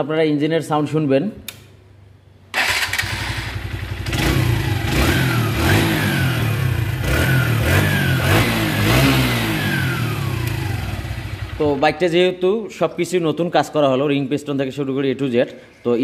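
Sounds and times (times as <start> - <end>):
motorcycle engine revving: 2.6 - 11.8.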